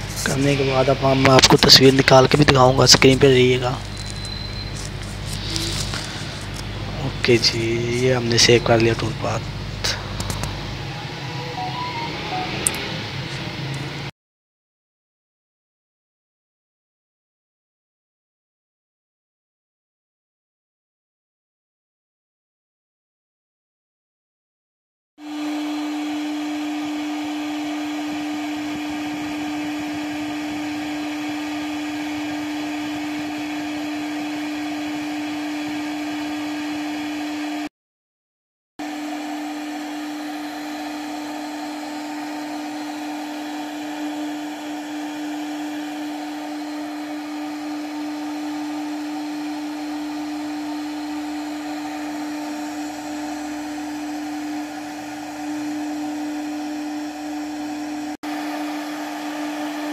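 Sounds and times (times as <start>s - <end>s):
router spindle whine: 0.0s - 13.9s, 25.2s - 37.5s, 38.8s - 59.9s.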